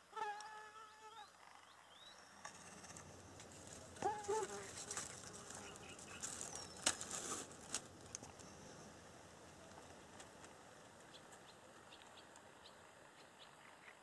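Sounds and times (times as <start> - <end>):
waterside ambience: 4.7 - 14.0.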